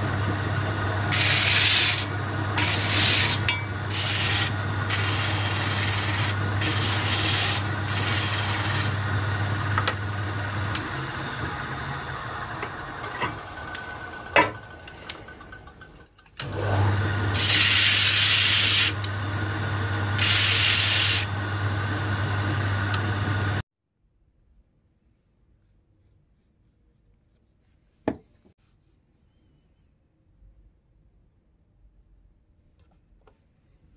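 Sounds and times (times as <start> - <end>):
sanding disc motor humming: 0.0 - 23.6
wood being sanded: 0.8 - 9.2, 17.3 - 19.1, 20.2 - 21.3.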